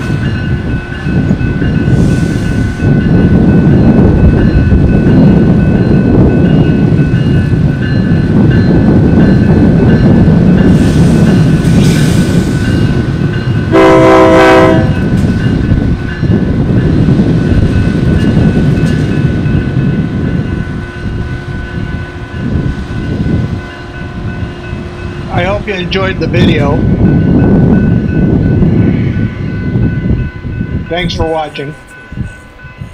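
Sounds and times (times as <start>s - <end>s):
crossing bell ringing: 0.0s - 32.9s
diesel locomotive engine running: 0.0s - 32.9s
locomotive horn blast: 13.7s - 15.0s.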